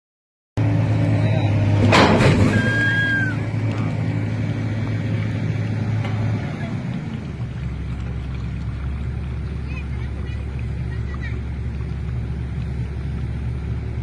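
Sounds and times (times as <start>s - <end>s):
diesel engine droning: 0.6s - 14.0s
high whistle-like tone: 2.5s - 3.4s.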